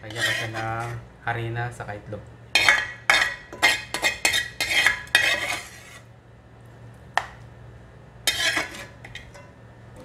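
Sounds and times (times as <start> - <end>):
metal spoon scraping frying pan: 0.0 - 1.0, 2.6 - 6.1, 8.3 - 9.4.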